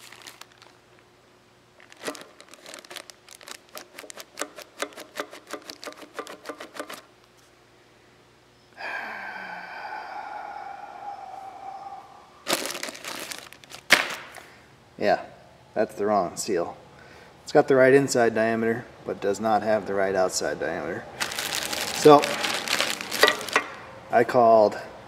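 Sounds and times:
plastic packaging crinkling: 0.0 - 1.1, 1.8 - 6.2, 12.4 - 14.4, 21.2 - 23.8
steady pitched whine: 7.8 - 13.7.

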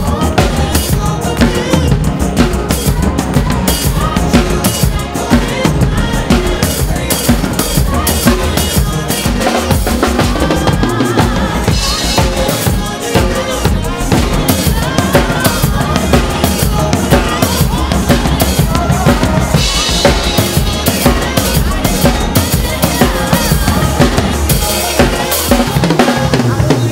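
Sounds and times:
acoustic drum kit playing: 0.0 - 26.9
backing track with singing voice: 0.0 - 26.9.

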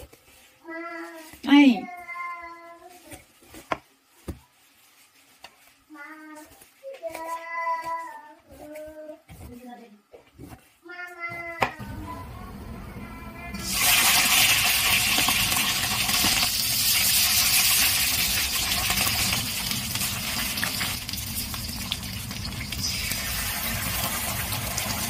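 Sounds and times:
fish sizzling in hot oil: 13.5 - 25.0.

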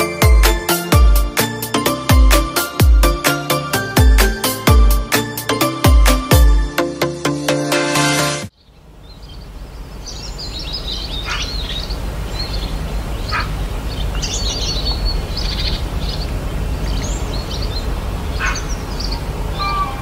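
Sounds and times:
wild birds chirping and calling: 8.5 - 20.0.

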